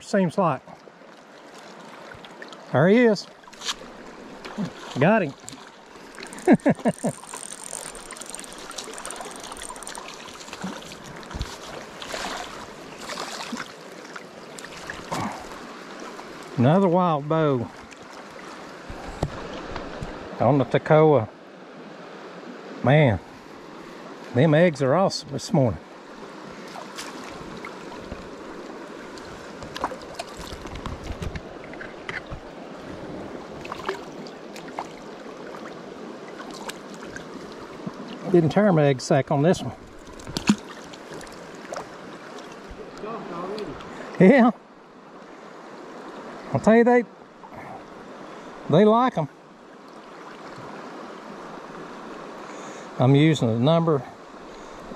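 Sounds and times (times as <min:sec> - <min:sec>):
river current rushing: 0:00.8 - 0:53.6
fish splashing: 0:03.5 - 0:13.8, 0:33.5 - 0:37.8, 0:39.8 - 0:42.8.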